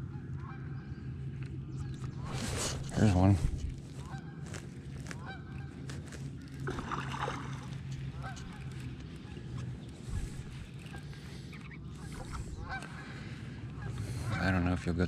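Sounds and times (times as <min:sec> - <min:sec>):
low steady hum: 0:00.0 - 0:15.0
geese honking: 0:04.0 - 0:05.8, 0:06.7 - 0:15.0.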